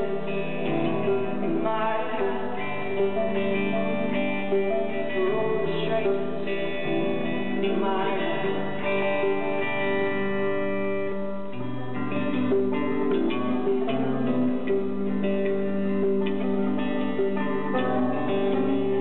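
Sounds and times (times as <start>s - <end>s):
electric guitar: 0.0s - 19.0s
person singing: 0.0s - 19.0s.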